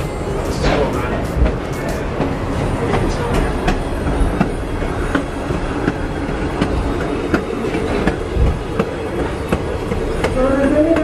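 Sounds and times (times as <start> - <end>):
train wheels rumbling on track: 0.0 - 11.0
wheels clicking over rail joints: 0.0 - 11.0.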